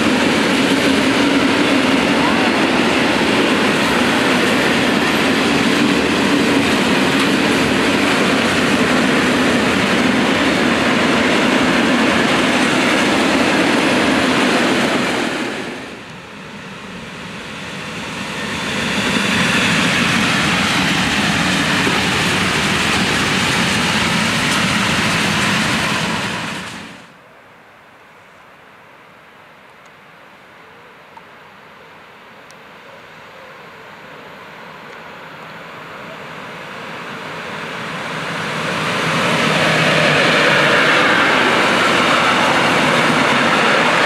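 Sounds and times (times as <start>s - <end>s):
train wheels rumbling on rails: 0.0s - 27.1s, 35.9s - 44.0s
electric locomotive passing: 0.0s - 27.2s, 32.7s - 44.0s.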